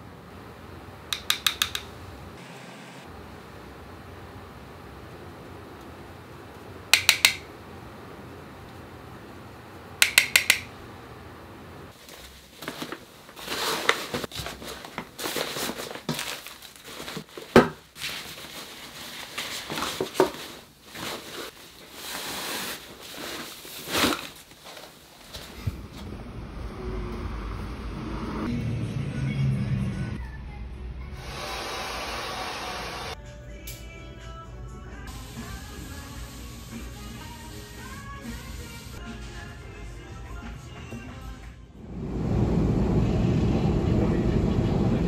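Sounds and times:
fabric bag rustling: 11.9 - 25.6.

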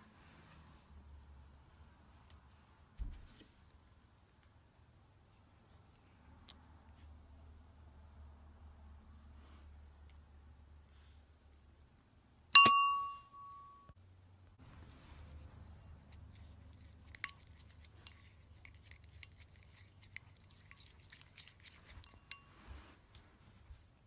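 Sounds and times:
ceramic bowl ringing clink: 12.6 - 13.9
spoon clinking in bowl stirring: 12.6 - 13.9, 15.6 - 22.7.

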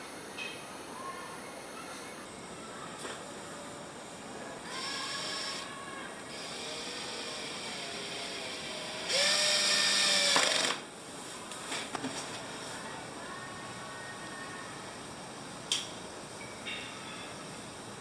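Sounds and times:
cordless drill driving screw: 4.7 - 5.6, 6.3 - 10.8.

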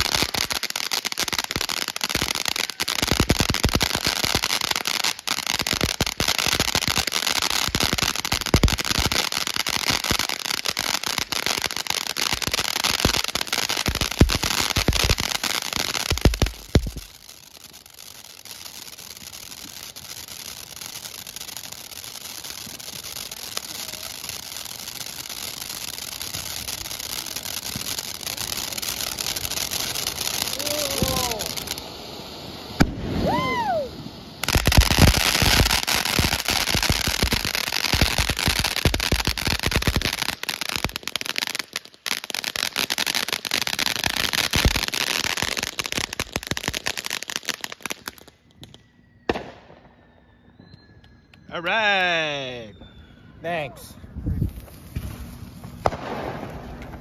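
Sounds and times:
firework hissing: 0.0 - 49.8, 54.4 - 57.0
rapid crackling pops: 12.3 - 17.3.

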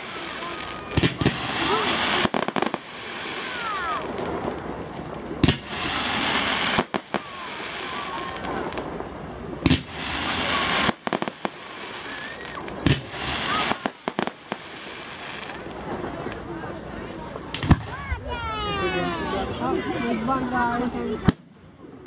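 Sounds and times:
firework quick cracks: 0.0 - 9.0, 9.6 - 16.6, 17.4 - 18.4
hiss of burning stars: 9.8 - 15.8.

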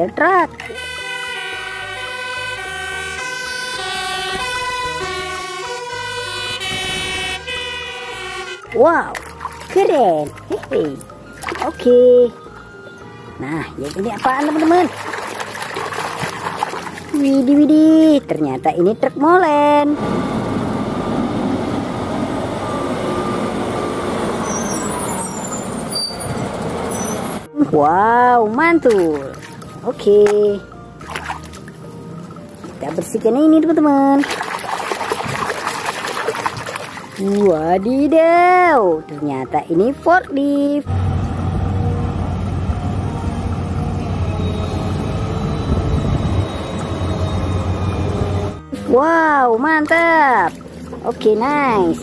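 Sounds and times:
fire engine sirens: 0.6 - 8.9, 19.9 - 27.6, 40.9 - 48.8
concrete mixer truck driving past: 19.8 - 27.5, 40.8 - 49.0.

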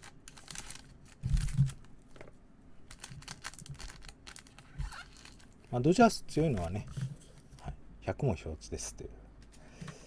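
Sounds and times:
plastic sleeve crinkling: 0.0 - 2.3, 2.9 - 7.7.

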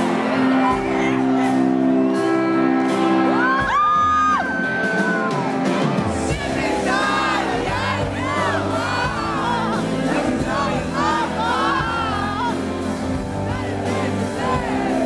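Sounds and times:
crowd cheering and whooping: 0.0 - 12.8, 13.4 - 15.0
live rock band playing: 0.0 - 15.0.

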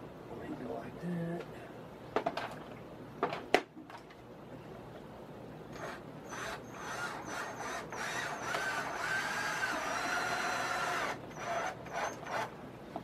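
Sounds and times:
cordless drill motor driving screws: 5.7 - 12.5.

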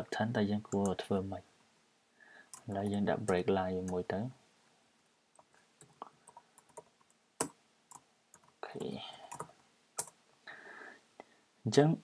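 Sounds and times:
keyboard typing: 2.5 - 4.0, 5.4 - 10.2.

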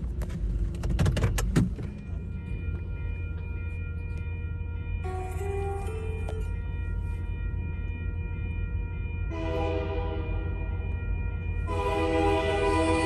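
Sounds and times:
steady low rumble: 0.0 - 13.0
locomotive air horn blasts: 9.3 - 10.4, 11.7 - 13.0.

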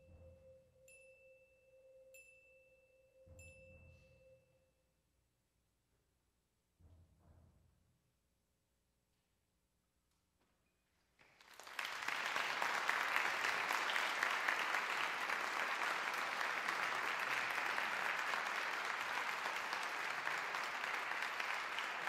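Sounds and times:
audience applause: 11.2 - 22.0.

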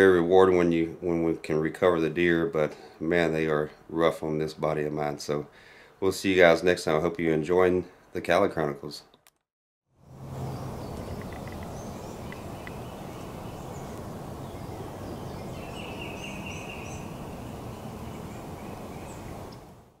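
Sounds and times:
small birds chirping: 10.2 - 19.8.

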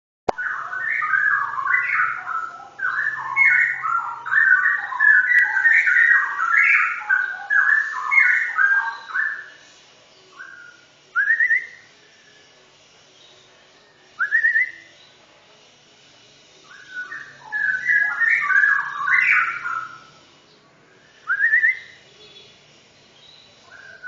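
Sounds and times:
rising bird trill: 0.3 - 9.5, 16.8 - 20.1
songbird singing whistled phrases: 0.3 - 9.5, 10.3 - 12.4, 14.2 - 15.1, 16.7 - 20.1, 21.2 - 22.0.

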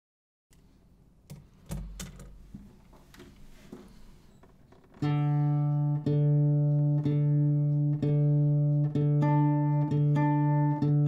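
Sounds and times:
acoustic guitar chords strummed: 5.0 - 11.0.

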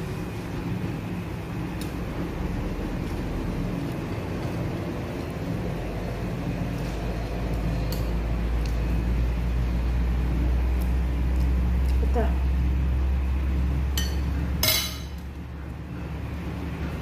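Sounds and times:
low rumbling background noise: 0.0 - 17.0.

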